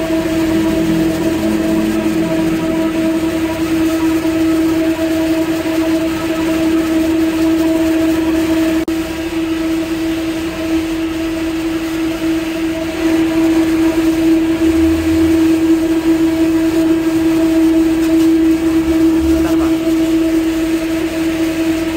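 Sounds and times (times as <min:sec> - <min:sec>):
electric fan motor humming: 0:00.0 - 0:21.9.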